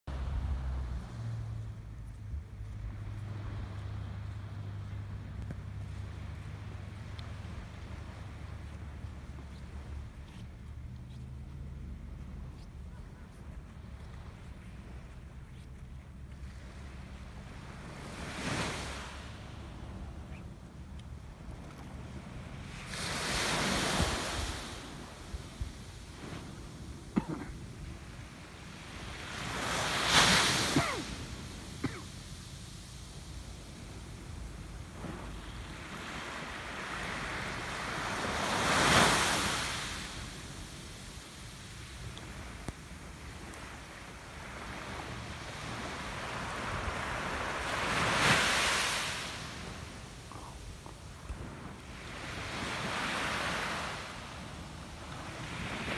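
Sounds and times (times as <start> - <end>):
wind rumble on microphone: 0.1 - 31.6
sea waves breaking on shore: 0.1 - 55.9
sea wave breaking on beach: 22.8 - 25.3.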